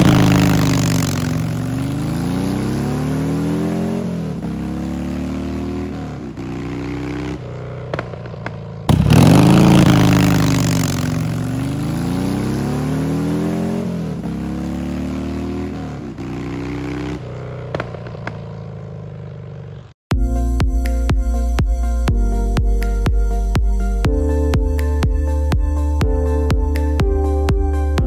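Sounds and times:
motorcycle accelerating through gears: 0:00.0 - 0:20.0.

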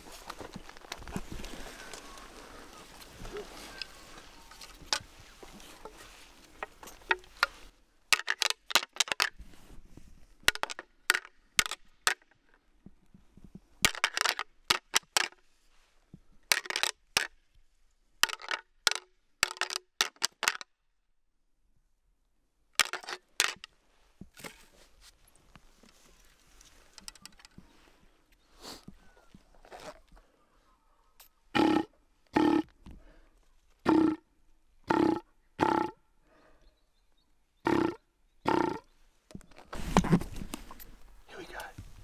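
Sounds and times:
antlers rattling together: 0:08.1 - 0:09.3, 0:13.8 - 0:15.4, 0:16.5 - 0:16.9, 0:22.8 - 0:23.7.

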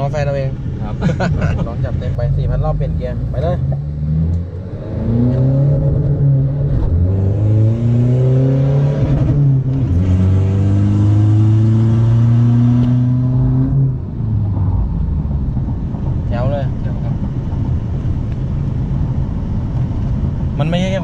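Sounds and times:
diesel engine revving: 0:02.3 - 0:14.0.

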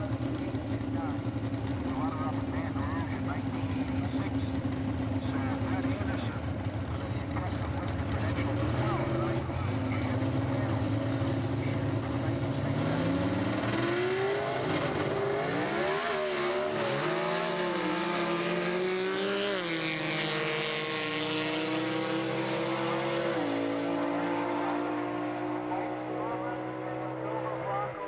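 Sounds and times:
drag racing car engine: 0:00.0 - 0:28.0.

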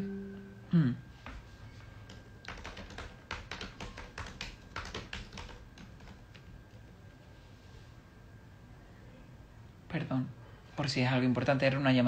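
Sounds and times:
fingers tapping on phone: 0:02.0 - 0:06.5.

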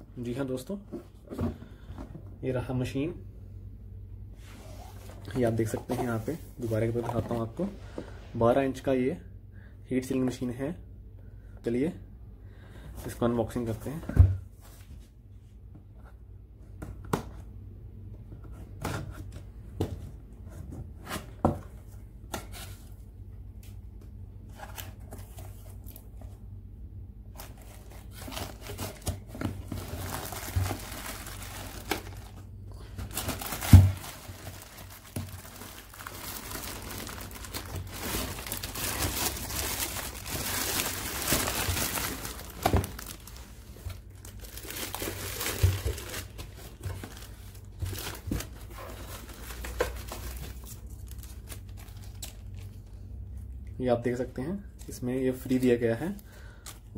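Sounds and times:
plastic wrapping crinkling: 0:27.3 - 0:52.9.

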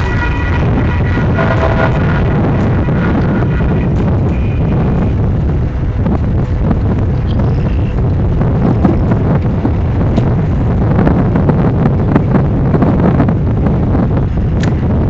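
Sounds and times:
diesel locomotives rumbling: 0:00.0 - 0:15.0
wind buffeting microphone: 0:00.0 - 0:15.0.

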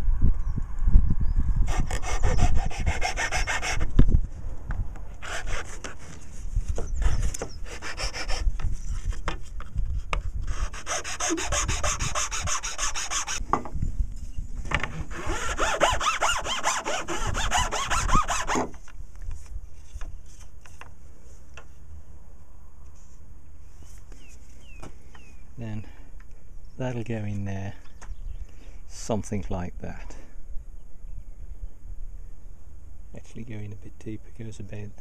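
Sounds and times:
file rasping on wood: 0:01.7 - 0:03.9, 0:05.2 - 0:06.2, 0:07.0 - 0:08.4, 0:10.5 - 0:13.4, 0:15.1 - 0:18.7.

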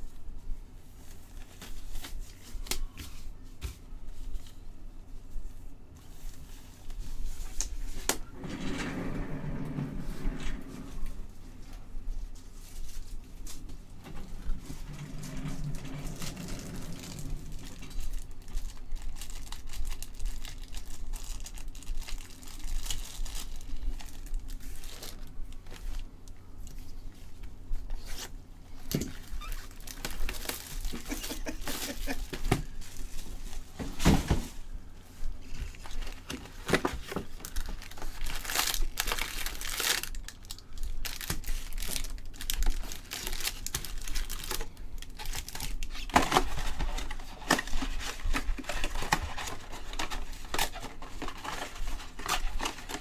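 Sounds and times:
foil wrappers crinkling: 0:12.2 - 0:26.8, 0:28.0 - 0:33.8, 0:35.4 - 0:53.0.

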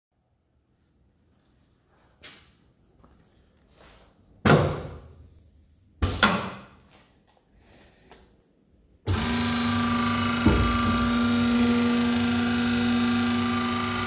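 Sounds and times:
router motor humming and whining: 0:09.1 - 0:14.0.

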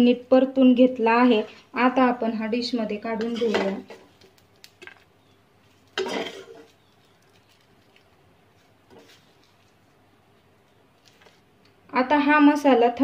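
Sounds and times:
spoon scraping and knocking on pot: 0:03.2 - 0:04.2, 0:05.9 - 0:06.8.

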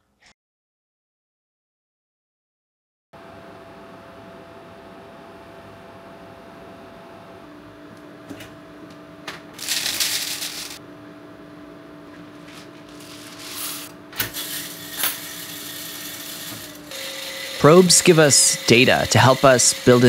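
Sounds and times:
coffee beans rattling: 0:09.6 - 0:10.8, 0:12.6 - 0:20.0.

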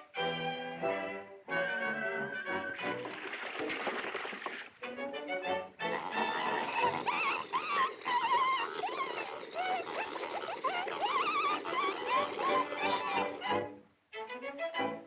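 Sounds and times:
wet slurping: 0:03.0 - 0:04.8, 0:05.9 - 0:13.4
pigs squealing and grunting: 0:05.9 - 0:13.5.

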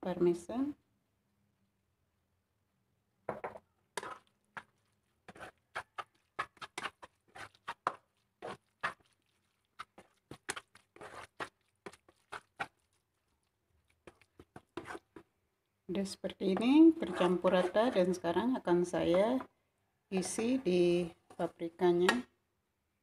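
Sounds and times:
spatula scraping a frying pan: 0:04.0 - 0:13.3, 0:14.0 - 0:15.2, 0:16.9 - 0:18.2.

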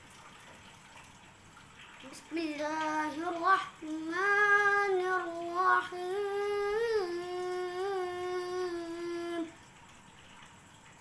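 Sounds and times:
boy chanting melodically: 0:02.0 - 0:09.5.

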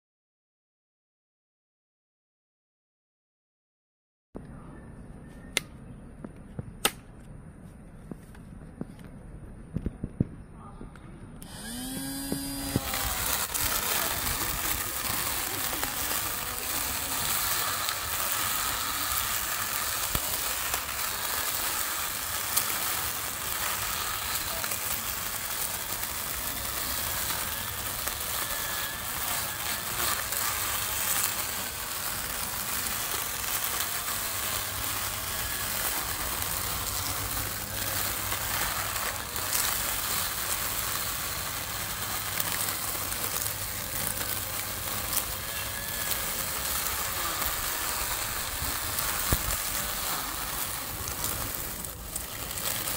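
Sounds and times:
electric string trimmer cutting grass: 0:11.4 - 0:52.9.

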